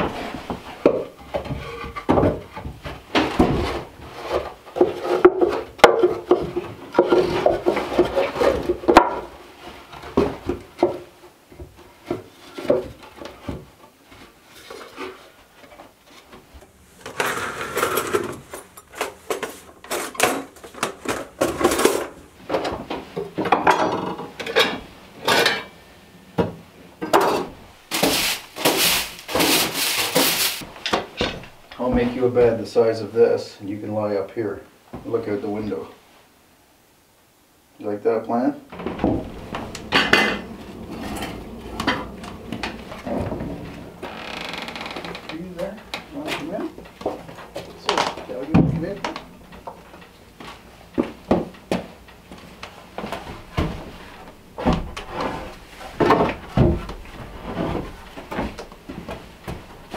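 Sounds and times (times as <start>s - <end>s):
wooden boards knocking and clattering: 0.0s - 13.9s, 17.0s - 24.8s, 38.7s - 44.0s, 45.8s - 59.9s
broom sweeping wooden floor: 27.8s - 30.8s.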